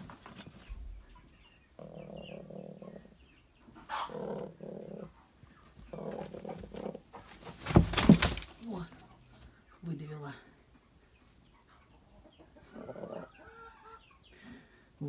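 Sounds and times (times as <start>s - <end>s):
hen growling: 1.8s - 3.2s, 3.9s - 5.2s, 5.9s - 7.2s, 12.7s - 13.4s.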